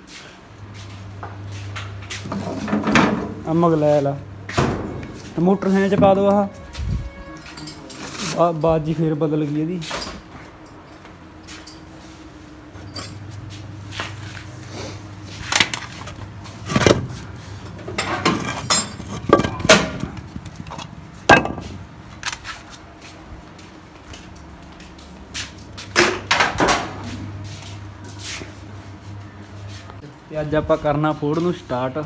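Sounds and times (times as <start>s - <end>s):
low steady hum: 9.9s - 22.7s
metal and wood clattering: 17.8s - 22.4s.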